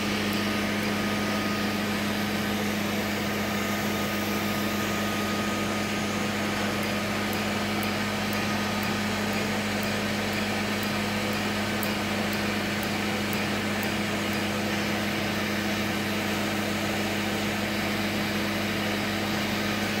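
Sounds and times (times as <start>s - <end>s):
laser unit humming: 0.0s - 20.0s
faint sharp laser ticks: 6.8s - 14.4s.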